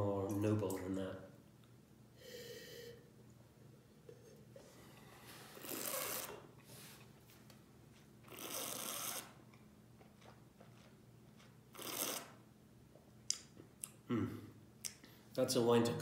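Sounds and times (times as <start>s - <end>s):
man breathing out: 2.2s - 3.1s.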